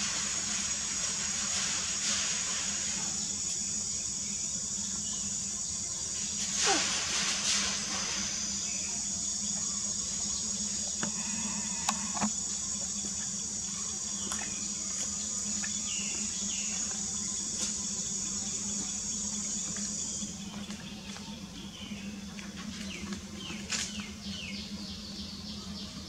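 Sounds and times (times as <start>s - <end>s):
high-pitched insect drone: 0.0s - 20.7s.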